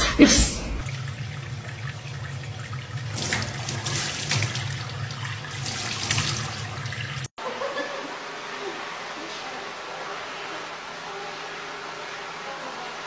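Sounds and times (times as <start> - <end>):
faucet running into metal sink: 0.8 - 7.3.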